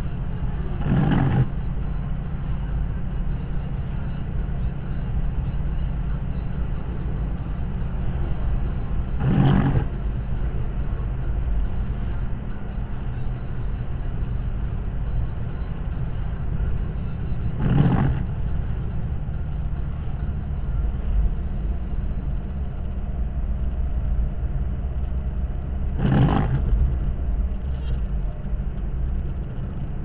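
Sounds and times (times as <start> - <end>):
car cabin road rumble: 0.0 - 30.0
passing vehicle whoosh: 7.9 - 11.0, 17.4 - 19.0.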